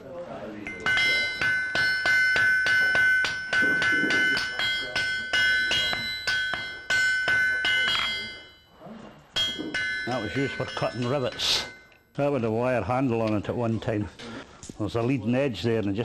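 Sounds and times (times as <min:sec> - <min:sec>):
hammer striking on anvil: 0:00.6 - 0:08.7, 0:09.4 - 0:12.0
anvil ringing: 0:00.6 - 0:12.5.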